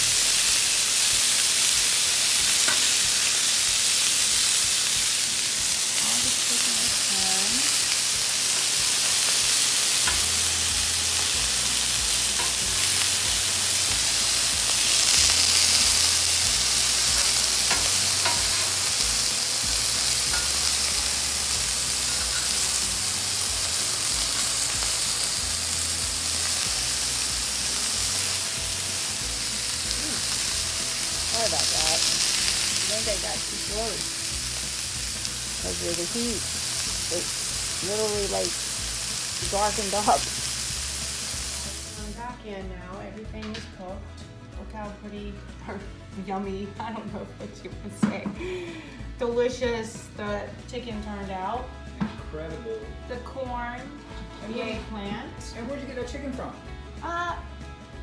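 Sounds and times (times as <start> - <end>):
food sizzling on a griddle: 0.0 - 42.2.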